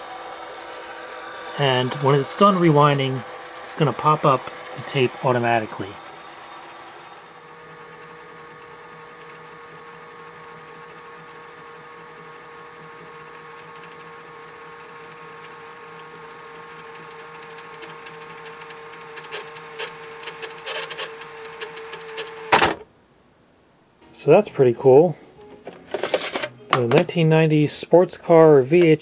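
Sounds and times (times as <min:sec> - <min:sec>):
tape rewinder motor whine: 0:00.0 - 0:22.8.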